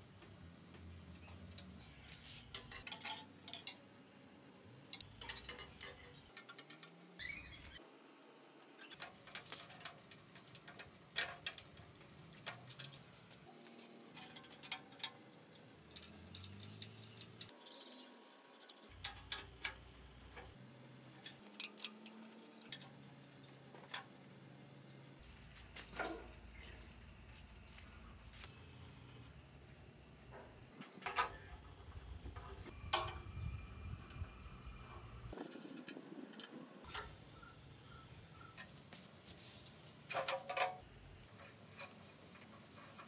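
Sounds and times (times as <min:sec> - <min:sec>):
metal parts and tools clicking: 0:02.4 - 0:03.9, 0:04.9 - 0:07.7, 0:08.8 - 0:20.6, 0:40.0 - 0:43.0.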